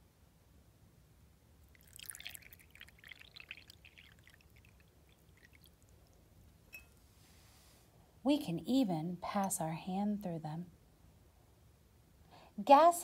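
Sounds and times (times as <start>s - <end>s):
water pouring into a glass: 1.6s - 6.3s.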